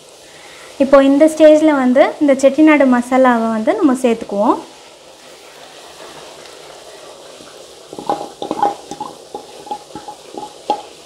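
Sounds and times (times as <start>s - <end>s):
meat sizzling in a pan: 0.0s - 2.6s, 3.6s - 11.0s
spoon knocking and scraping pan: 7.3s - 11.0s.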